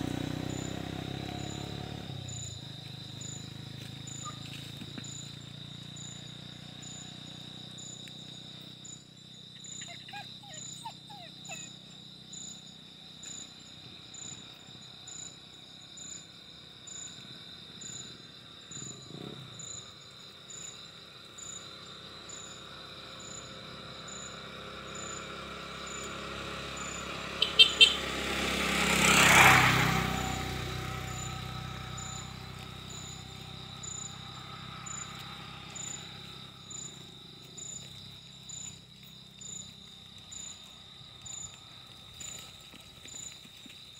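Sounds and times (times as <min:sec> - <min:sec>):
vehicle passing: 0:00.0 - 0:09.2, 0:18.4 - 0:43.9
insects chirping: 0:00.0 - 0:43.9.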